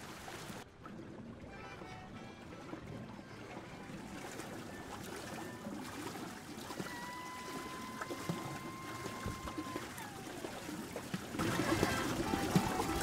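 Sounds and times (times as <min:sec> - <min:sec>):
water trickling and lapping: 0:00.0 - 0:13.0
music: 0:01.4 - 0:04.0, 0:11.7 - 0:13.0
steady whistle-like tone: 0:04.6 - 0:10.2.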